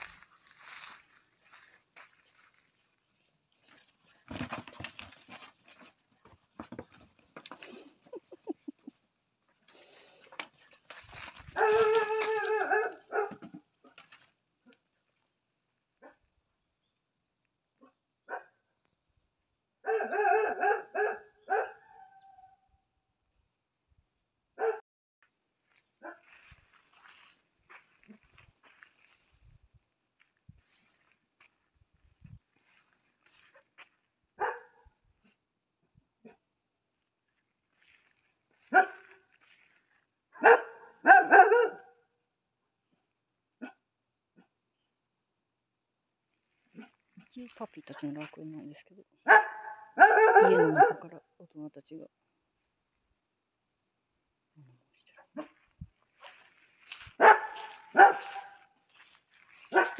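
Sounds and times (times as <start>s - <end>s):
puppy barking: 11.5s - 13.5s, 18.3s - 18.6s, 19.8s - 22.4s, 24.6s - 24.8s, 34.4s - 34.8s, 38.7s - 39.1s, 40.4s - 42.0s, 49.2s - 51.1s, 57.2s - 58.7s, 59.7s - 59.9s.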